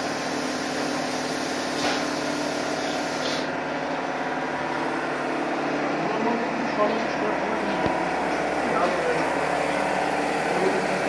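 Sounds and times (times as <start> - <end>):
hiss of paint spraying: 0.0 - 3.5
paint sprayer mechanical hum: 0.0 - 11.0.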